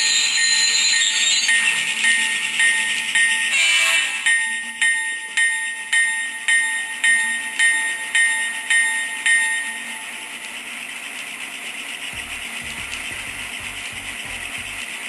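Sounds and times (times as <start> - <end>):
locomotive bell ringing: 0.0 - 10.7.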